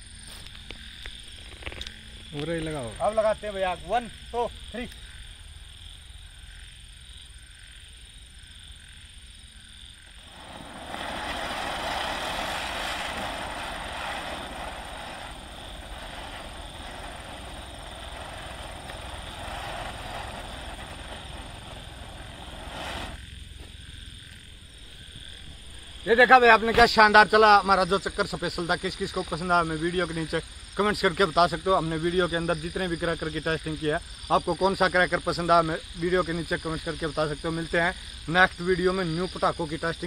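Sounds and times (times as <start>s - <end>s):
spinning firework hissing: 10.0s - 27.3s.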